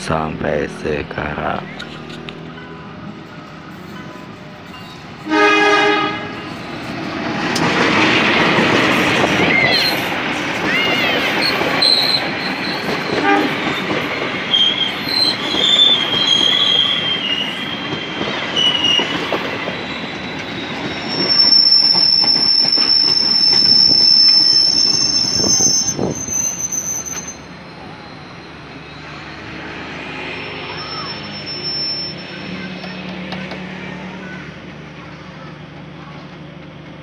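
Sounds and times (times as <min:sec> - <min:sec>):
train wheels rumbling: 0:00.0 - 0:37.0
high brake squeals: 0:11.0 - 0:13.9, 0:14.5 - 0:29.4, 0:30.2 - 0:33.0.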